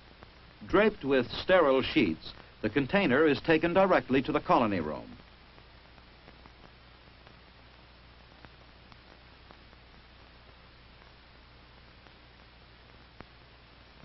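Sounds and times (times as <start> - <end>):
film soundtrack hiss: 0.0 - 14.0
faint clicks: 12.0 - 13.4.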